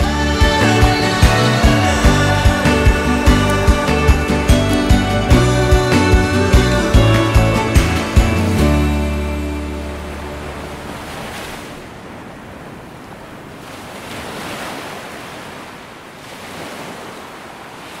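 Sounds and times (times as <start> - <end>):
background music note: 0.0 - 11.3
ocean waves washing in: 0.0 - 18.0.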